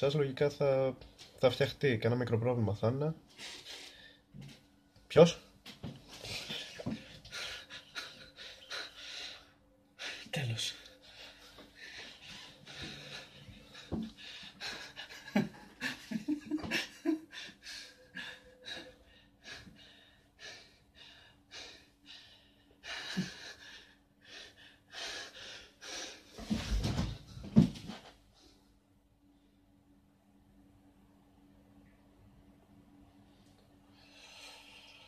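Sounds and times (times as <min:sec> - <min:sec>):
man gasping and panting: 0:06.1 - 0:27.0.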